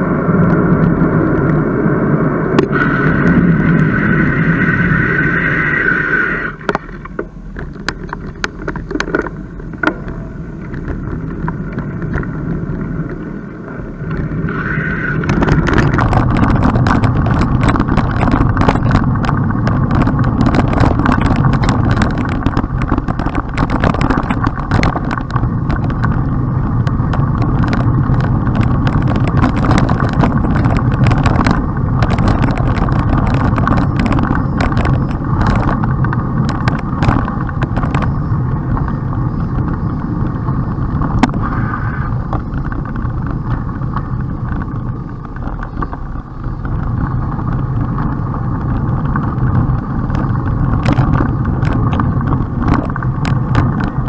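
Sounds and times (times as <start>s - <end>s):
wind and road noise: 0.0s - 54.0s
bicycle clicks and rattles: 6.6s - 14.4s, 15.2s - 54.0s.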